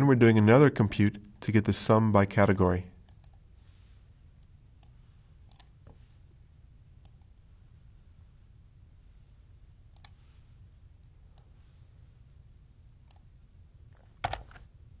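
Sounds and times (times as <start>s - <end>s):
low steady background hum: 0.0s - 15.0s
computer mouse clicks: 3.0s - 3.4s, 4.8s - 6.0s, 7.0s - 7.3s, 9.9s - 10.2s, 13.0s - 13.3s.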